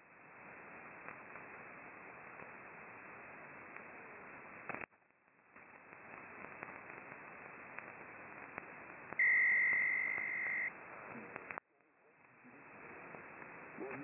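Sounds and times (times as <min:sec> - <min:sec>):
radio static hiss: 0:00.0 - 0:14.0
steady high radio tone: 0:09.1 - 0:11.6.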